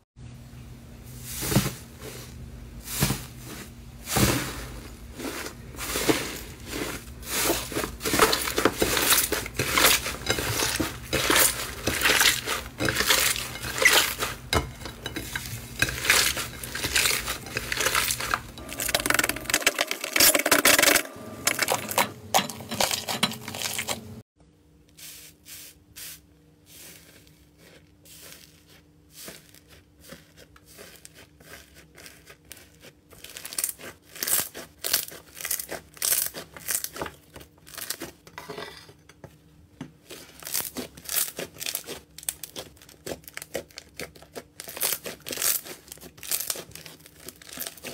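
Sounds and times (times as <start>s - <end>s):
slime crackling and popping: 40.4s - 47.9s.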